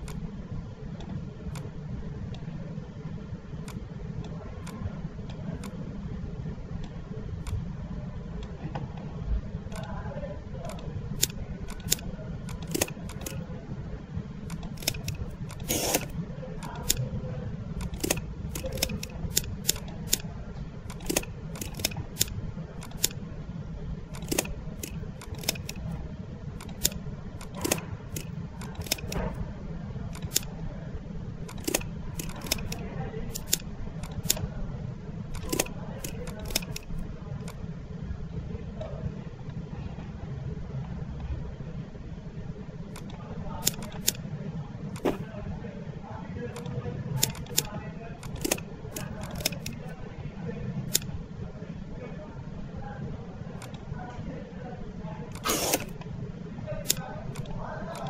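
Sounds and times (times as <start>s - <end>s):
computer mouse clicking: 0.0s - 0.2s, 3.6s - 5.8s, 10.6s - 13.5s, 14.5s - 17.1s, 17.8s - 20.3s, 20.9s - 23.2s, 24.1s - 26.0s, 26.6s - 29.4s, 30.1s - 30.5s, 31.4s - 34.5s, 35.3s - 37.6s, 42.9s - 44.2s, 45.0s - 45.2s, 46.6s - 49.9s, 50.9s - 51.1s, 53.6s - 53.8s, 55.3s - 56.1s, 56.9s - 58.0s.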